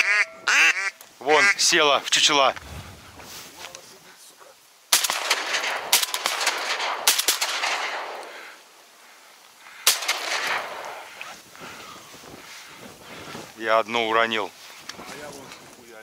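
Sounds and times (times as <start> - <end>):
shotgun shots echoing: 4.9 - 8.6, 9.8 - 11.1.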